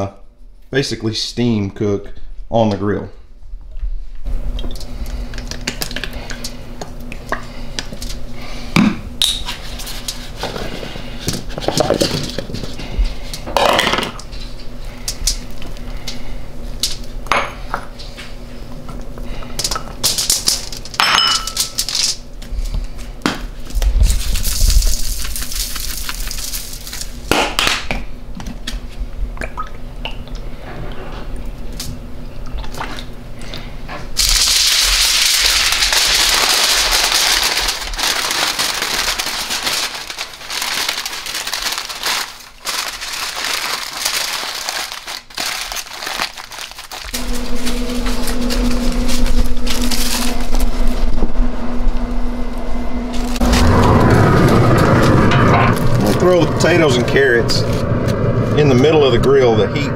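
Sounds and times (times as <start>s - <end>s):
foil crinkling: 9.4s - 13.4s, 20.0s - 22.3s, 23.6s - 27.3s, 34.2s - 51.0s
glass bowls clinking on countertop: 21.0s - 21.6s.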